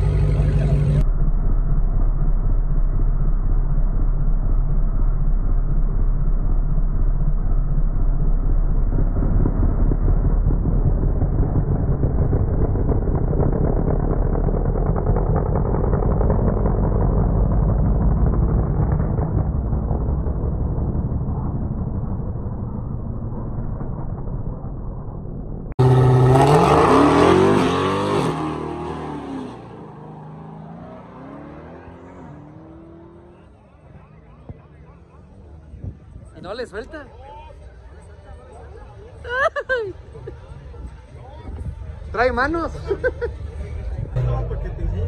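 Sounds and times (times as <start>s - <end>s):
car engine idling with deep rumble: 0.0s - 23.1s, 33.2s - 45.0s
engines revving hard: 25.8s - 34.2s.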